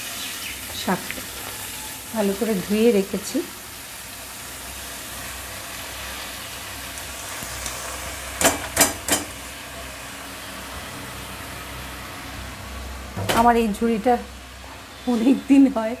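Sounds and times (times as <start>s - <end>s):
leaves frying in hot oil: 0.0s - 16.0s
colander knocking on wok: 8.4s - 9.4s.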